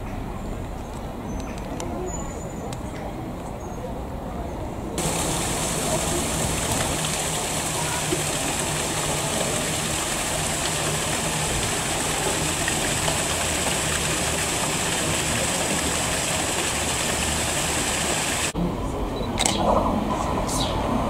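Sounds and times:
water rushing over lock gates: 5.0s - 18.6s.

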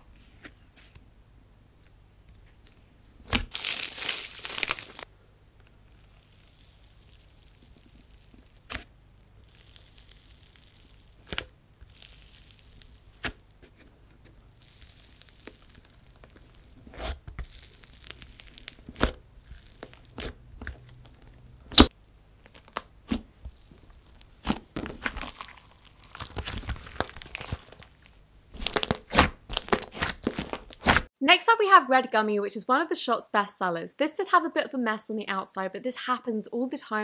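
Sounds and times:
slime being poked and stretched: 5.9s - 13.7s, 14.5s - 27.9s.

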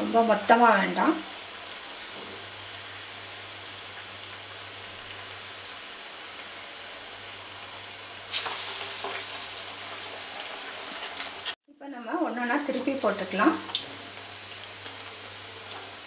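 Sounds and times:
food deep-frying in hot oil: 0.0s - 16.0s.

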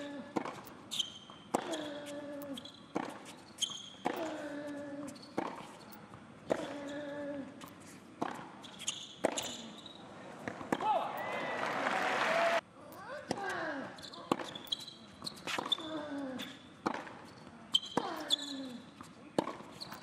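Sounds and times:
tennis ball bouncing: 0.3s - 2.2s, 2.9s - 3.4s, 5.0s - 5.8s, 8.2s - 9.7s, 10.4s - 11.0s, 14.3s - 14.8s, 16.8s - 18.2s, 19.4s - 20.0s
racket striking tennis ball: 10.4s - 11.0s, 19.4s - 19.7s.

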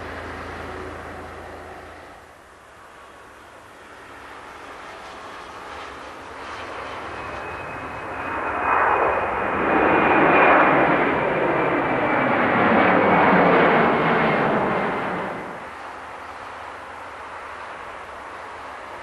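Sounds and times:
high engine whine: 0.0s - 19.0s
jet airliner roar: 0.0s - 19.0s.

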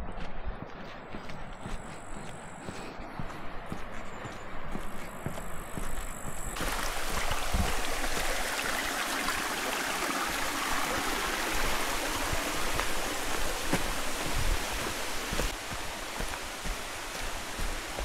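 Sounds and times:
soft footfalls on path: 0.0s - 8.5s, 10.4s - 18.0s
stream rushing and trickling: 6.6s - 18.0s.

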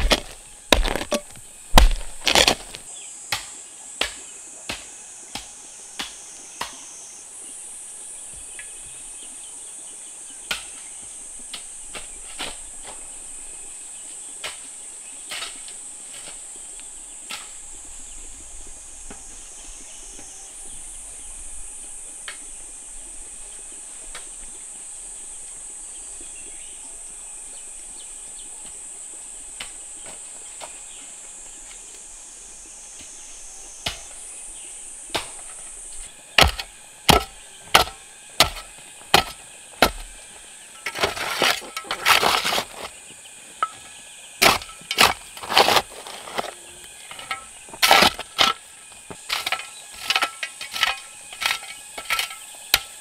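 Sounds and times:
sharp knocks: 0.0s - 2.8s, 36.4s - 40.1s
rough scraping: 0.0s - 2.9s, 35.3s - 53.0s
insects buzzing: 0.0s - 53.0s.

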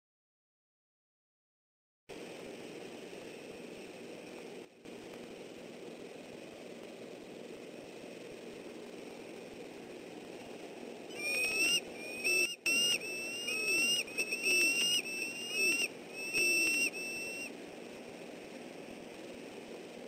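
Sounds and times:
eagle calling with whistled notes: 11.1s - 17.5s.

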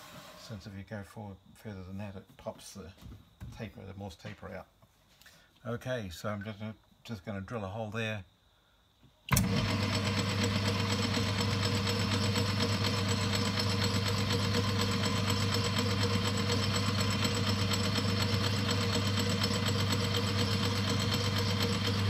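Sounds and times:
metal lathe motor hum: 9.3s - 22.0s.

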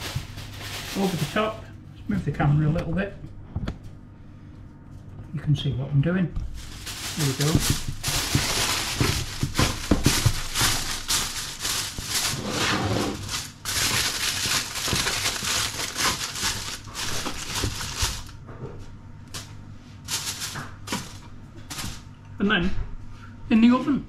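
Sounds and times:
aluminium foil crinkling: 0.0s - 1.7s, 6.4s - 18.4s, 19.3s - 22.1s.

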